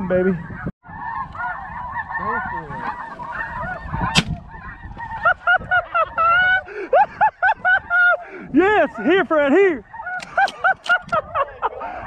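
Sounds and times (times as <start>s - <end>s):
geese honking: 0.0s - 12.0s
shotgun shot: 4.1s - 4.4s.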